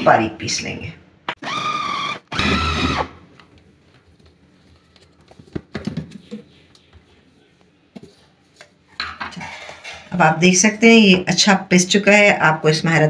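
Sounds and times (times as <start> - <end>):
food chopper motor whirring: 1.4 - 3.2.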